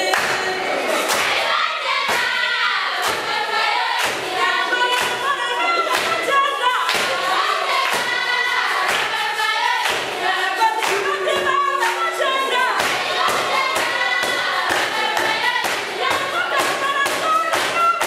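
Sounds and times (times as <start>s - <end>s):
children's choir singing: 0.0s - 18.0s
drum beats: 0.0s - 18.0s.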